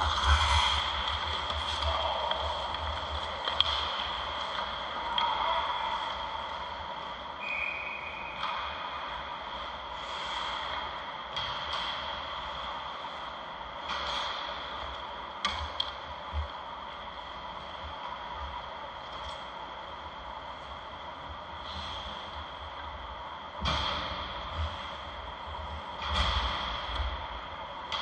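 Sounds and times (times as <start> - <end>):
hockey sticks and puck clacking: 0.0 - 6.2, 7.6 - 9.2.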